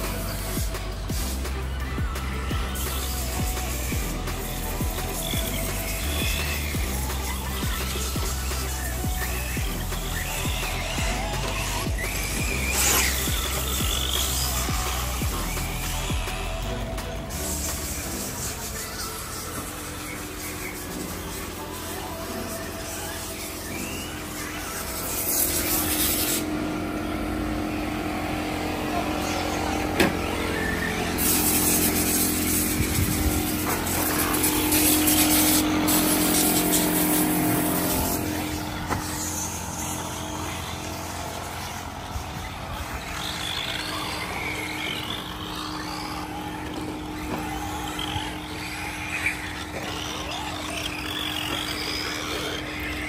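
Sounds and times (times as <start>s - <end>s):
rc car whine: 0.0s - 53.0s
steady hum: 0.0s - 53.0s.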